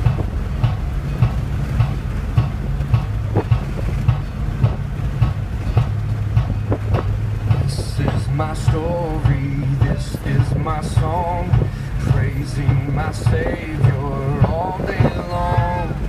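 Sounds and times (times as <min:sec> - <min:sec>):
instrumental music from car stereo: 0:00.0 - 0:16.0
road and engine hum: 0:00.0 - 0:16.0
person singing: 0:07.6 - 0:16.0.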